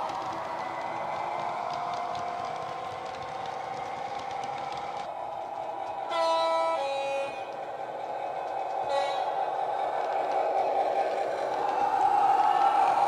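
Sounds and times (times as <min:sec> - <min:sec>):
two-tone train horn: 0:06.0 - 0:07.7, 0:08.8 - 0:09.5.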